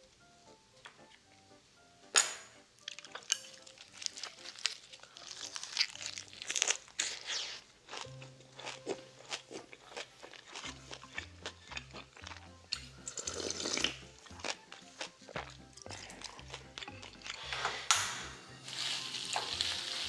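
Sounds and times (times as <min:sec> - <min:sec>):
faint background music: 0:00.0 - 0:20.0
crunchy chewing: 0:02.8 - 0:17.9.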